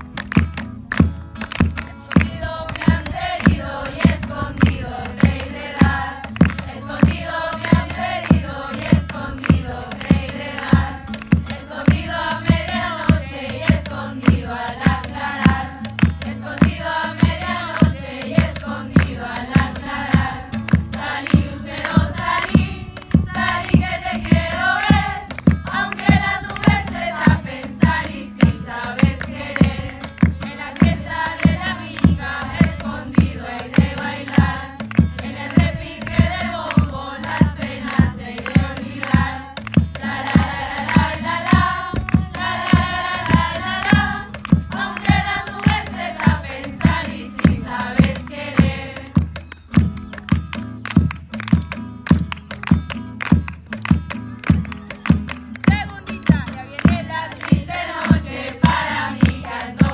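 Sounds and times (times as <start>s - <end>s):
acoustic guitar: 0.0s - 59.9s
women's choir singing: 1.9s - 49.2s, 56.6s - 59.9s.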